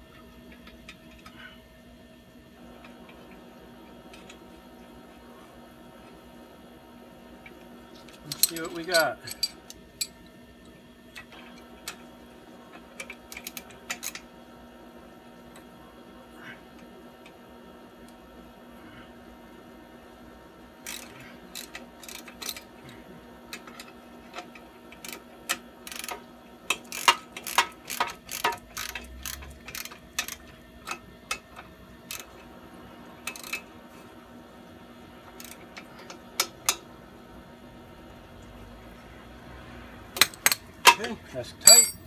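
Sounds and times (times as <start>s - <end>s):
ratchet wrench clicking: 20.9s - 22.6s, 25.9s - 30.4s
metal clinks: 41.6s - 42.0s.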